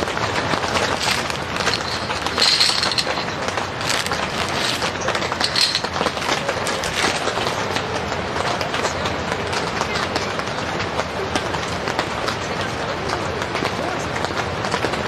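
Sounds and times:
rain pattering on a tent: 0.0 - 15.0
sticks clinking on a metal plate: 0.4 - 7.6.

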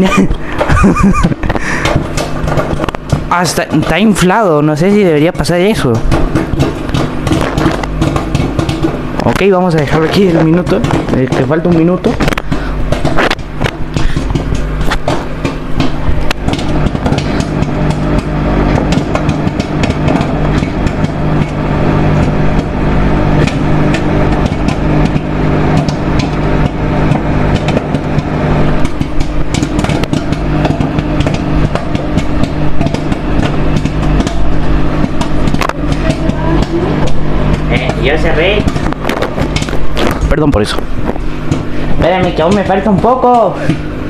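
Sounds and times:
microwave oven humming: 0.0 - 44.0
popcorn popping: 0.0 - 44.0.

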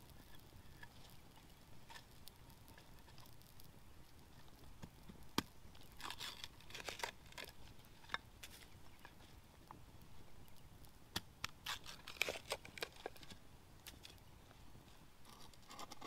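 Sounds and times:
bamboo snapping: 5.3 - 9.1, 11.1 - 14.2
knife shaving bamboo: 5.8 - 8.6, 11.4 - 13.3.

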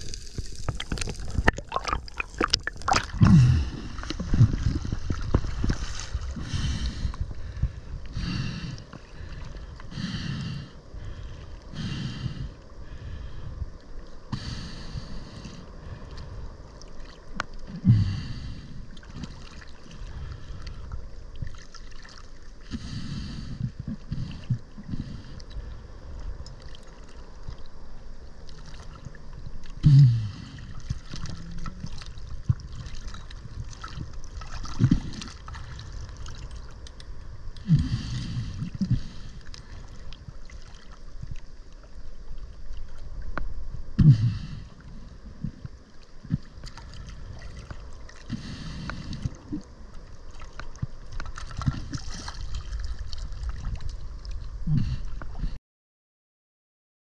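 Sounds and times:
low churning rumble: 0.0 - 55.6
water sloshing and bubbling: 0.0 - 55.6.

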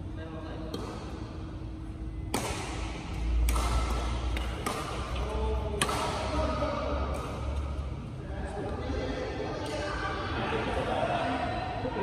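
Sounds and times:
rackets hitting shuttlecock: 0.6 - 1.4, 2.1 - 7.9.

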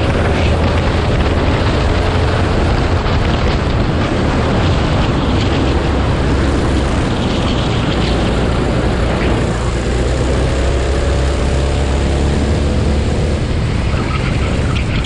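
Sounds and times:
kart engine running: 0.0 - 15.0
wind rush on microphone: 0.0 - 15.0.

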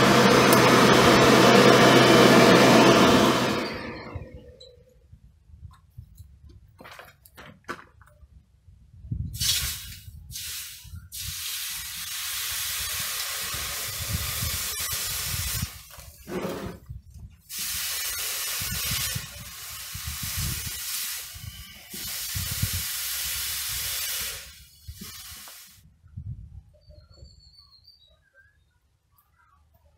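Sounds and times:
hot steel hissing in water: 9.4 - 15.9, 17.5 - 25.8.

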